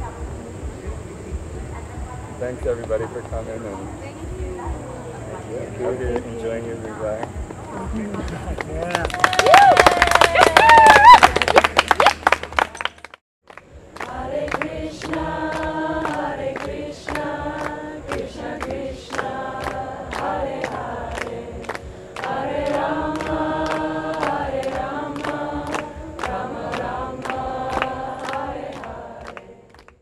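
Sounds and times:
sharp percussion beat: 6.0 - 9.0, 13.6 - 29.9
group singing a chant: 14.0 - 30.0.

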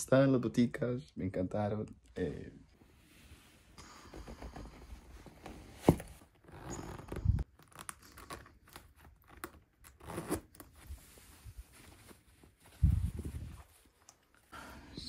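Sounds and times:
leather and cloth rustling: 4.3 - 14.4.

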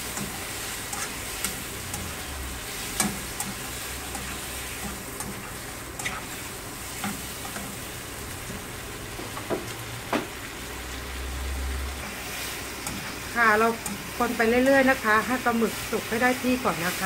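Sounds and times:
food sizzling in a pan: 0.0 - 17.0
spatula scraping and tapping pan: 0.1 - 2.1, 2.8 - 6.3.

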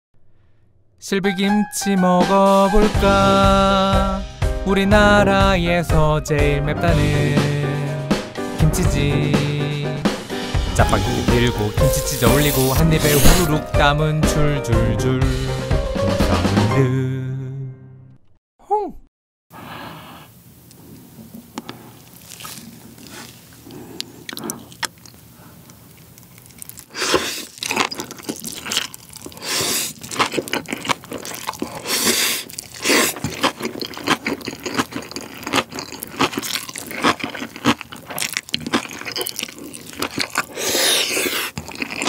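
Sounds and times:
crunchy wet chewing: 10.9 - 13.6, 20.7 - 42.0
wet slurping of noodles: 11.0 - 13.6, 26.8 - 34.1, 38.8 - 42.0.

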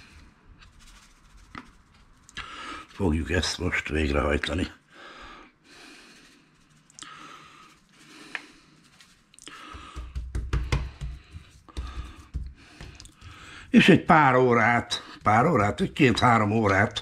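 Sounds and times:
hand patting raw chicken: 9.5 - 17.0.

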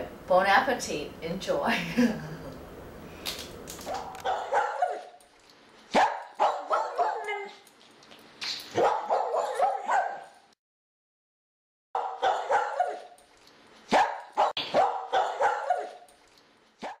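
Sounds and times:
dog barking: 3.9 - 5.2, 5.9 - 7.6, 8.7 - 10.4, 12.0 - 13.2, 13.9 - 16.1.

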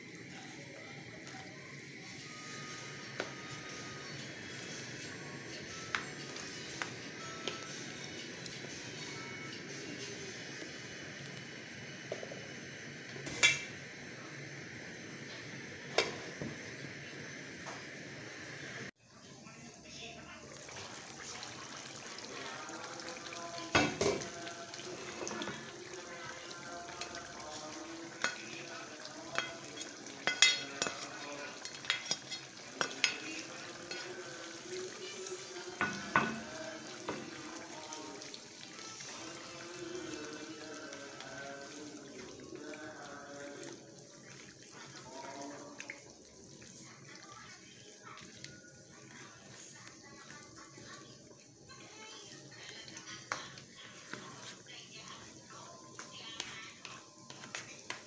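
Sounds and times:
soup simmering: 20.4 - 54.6.

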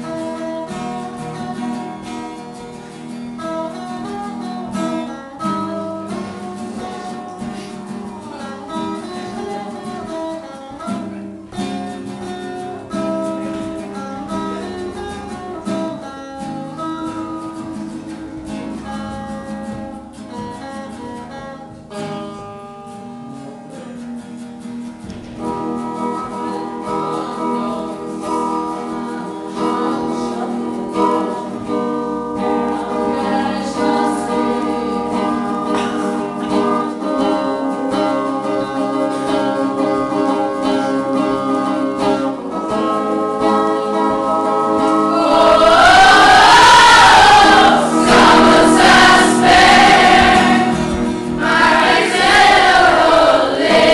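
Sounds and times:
acoustic guitar: 0.0 - 53.9
group of voices singing: 32.6 - 41.1, 44.7 - 53.9.

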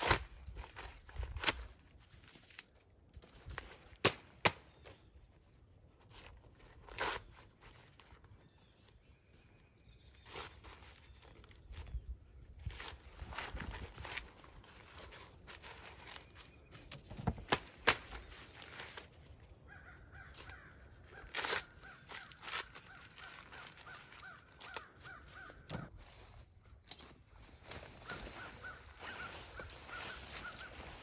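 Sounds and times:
quiet rural background: 0.0 - 31.0
crows cawing faintly: 19.4 - 26.4, 27.7 - 31.0.

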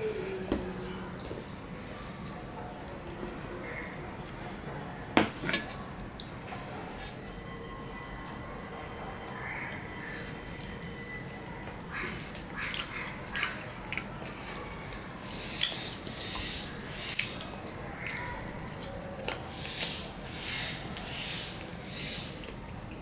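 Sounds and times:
chewing: 11.6 - 23.0.

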